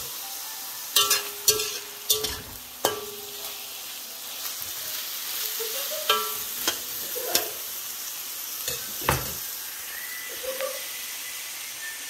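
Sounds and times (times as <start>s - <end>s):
food sizzling in a wok: 0.0s - 12.0s
metal spatula scraping a pan: 1.0s - 3.7s, 5.4s - 7.8s.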